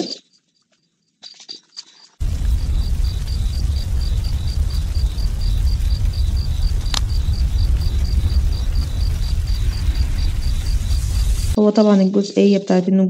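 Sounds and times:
crickets chirping: 0.0 - 11.6
sharp crackle: 1.8 - 11.6
low rumble: 2.2 - 11.6.

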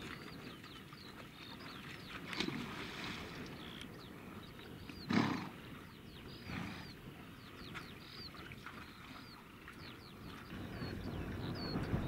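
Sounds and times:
birds chirping: 0.0 - 12.0
horse snorting: 5.0 - 5.6, 6.4 - 7.0.

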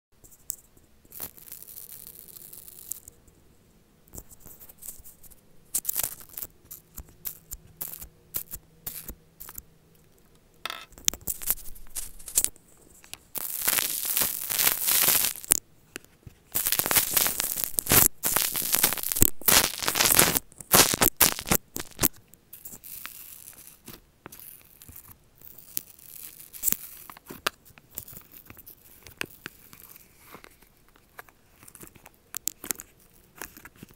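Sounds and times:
slime bubbles crackling and popping: 5.8 - 9.6, 13.3 - 15.6, 16.5 - 33.9.

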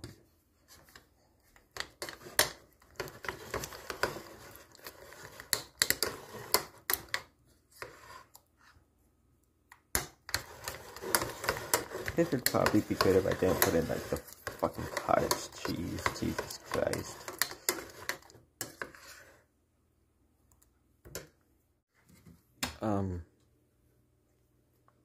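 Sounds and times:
metal spoon stirring in ceramic bowl: 1.8 - 7.1, 10.3 - 19.3.

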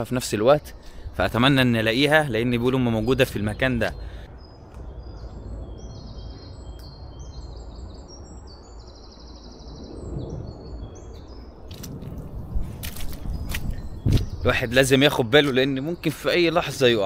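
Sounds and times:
songbirds chirping: 0.0 - 17.0
low rumble: 3.9 - 14.8.

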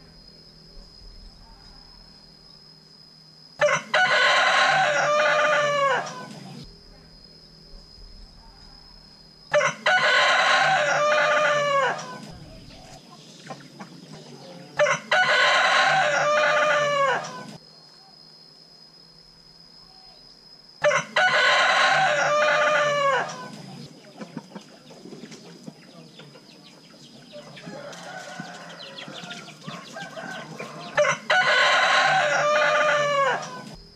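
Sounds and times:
rooster crowing: 3.6 - 6.6, 9.5 - 12.9, 14.3 - 17.6, 20.8 - 23.7, 27.3 - 33.8.

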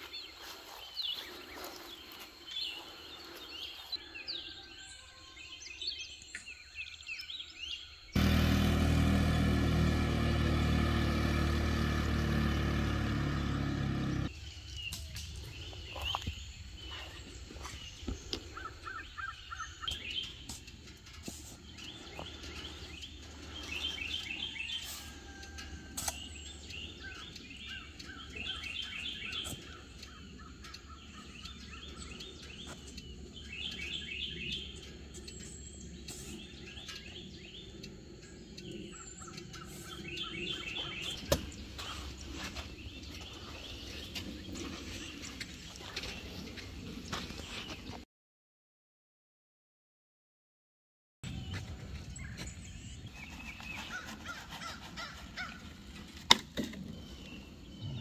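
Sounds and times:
songbirds trilling: 0.0 - 48.0, 51.3 - 58.0
garden hoe striking soil: 26.0 - 26.3.

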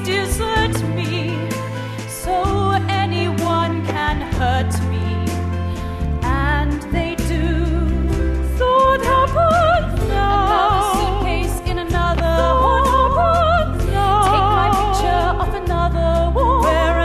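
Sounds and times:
sustained instrumental backing: 0.0 - 17.0
woman singing a ballad: 0.0 - 17.0.

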